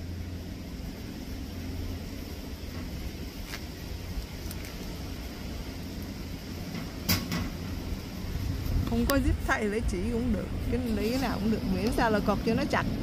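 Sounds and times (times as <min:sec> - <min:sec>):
low background rumble: 0:00.0 - 0:13.0
faint clicks and rustles: 0:02.7 - 0:07.6.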